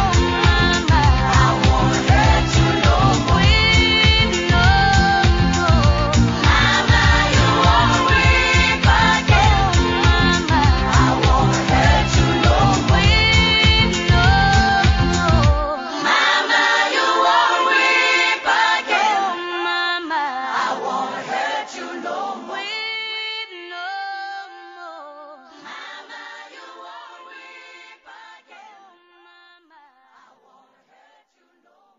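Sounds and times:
pop song drums and bass: 0.0 - 15.7
voices singing unaccompanied: 0.0 - 31.9.

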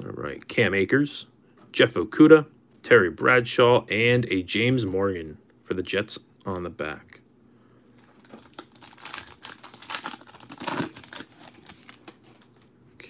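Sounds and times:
foil wrapper crinkling and tearing: 8.0 - 12.6.

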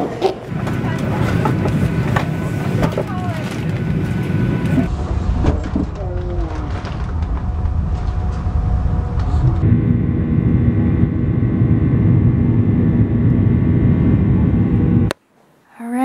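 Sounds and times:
faint voices: 0.0 - 4.9
airliner cabin engine rumble: 0.0 - 15.1.

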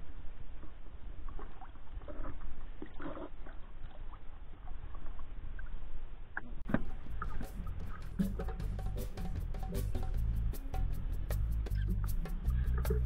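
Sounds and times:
steady low rumble: 6.5 - 13.0
water splashing in a bucket: 6.7 - 8.7.

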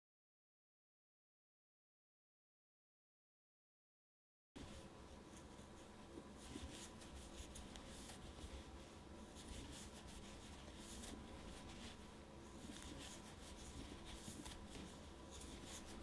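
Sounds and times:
crochet hook scratching yarn: 4.6 - 16.0
low steady hum: 4.6 - 16.0.

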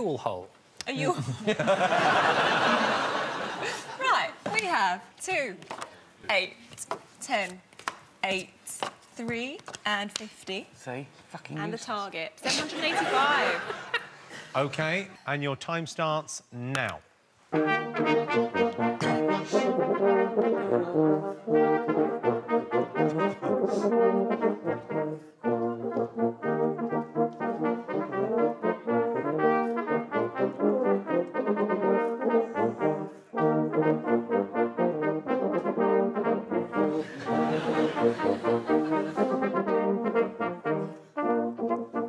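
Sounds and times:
brass band playing: 17.5 - 42.0.

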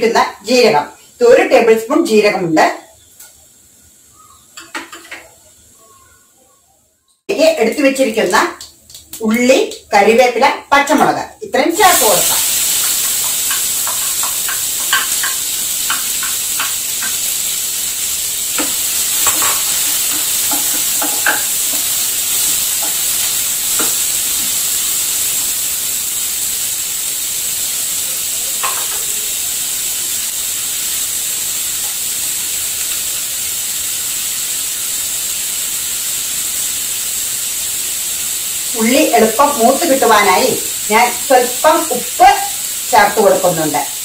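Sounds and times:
onions sizzling in hot oil: 0.0 - 6.4, 7.0 - 44.0
stirring clicks and scrapes on pan: 12.2 - 17.5, 18.5 - 24.1.

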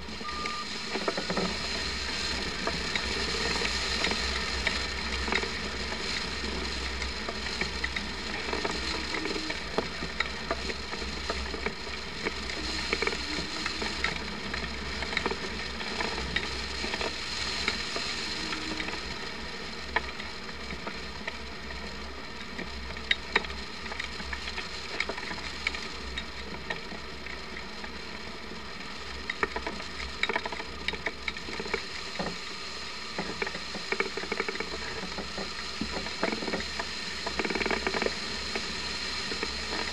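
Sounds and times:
sharp clicks and rattles: 0.0 - 28.0, 29.1 - 32.5, 33.1 - 39.9.

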